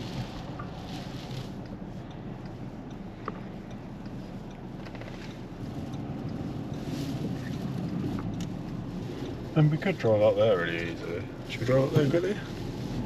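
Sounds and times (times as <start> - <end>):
car engine rumble inside cabin: 0.0 - 13.0
wind hissing against car: 0.0 - 13.0.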